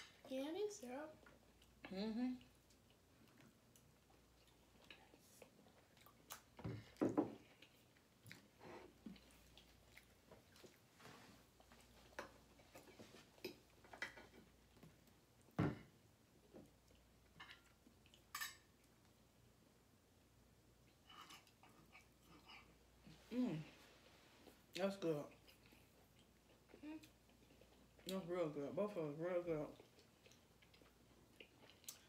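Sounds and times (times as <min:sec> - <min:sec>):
chewing: 0:01.2 - 0:15.1, 0:20.8 - 0:23.2, 0:24.0 - 0:28.1, 0:29.7 - 0:32.0.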